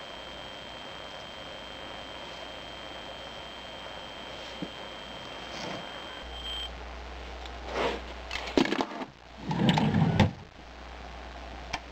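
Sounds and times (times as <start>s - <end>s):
wooden drawer scraping: 8.8s - 10.4s.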